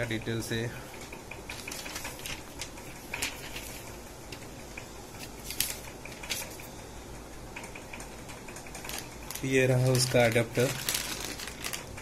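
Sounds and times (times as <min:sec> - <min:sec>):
paper rustling: 0:01.5 - 0:04.0, 0:05.2 - 0:06.6, 0:08.8 - 0:12.0.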